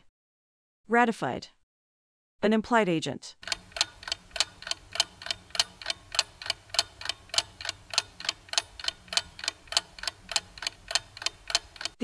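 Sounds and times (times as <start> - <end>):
clock ticking rapidly: 3.4 - 12.0.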